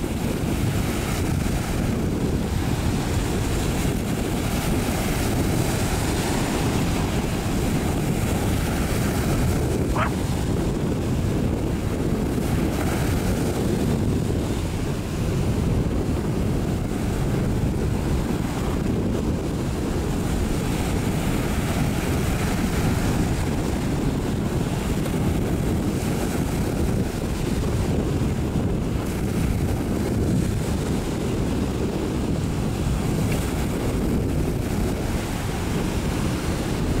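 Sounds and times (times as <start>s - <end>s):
sea waves: 0.0s - 37.0s
wind rumbling on microphone: 0.0s - 37.0s.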